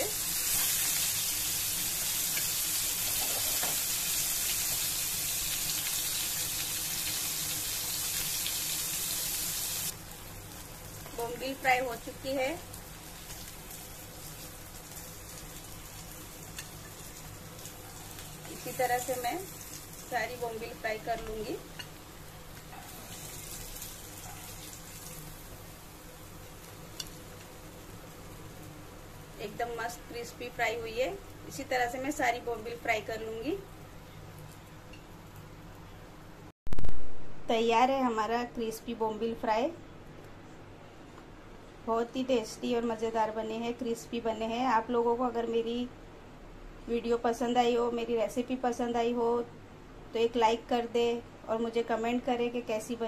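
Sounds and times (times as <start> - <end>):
fish sizzling in hot oil: 0.0 - 33.6.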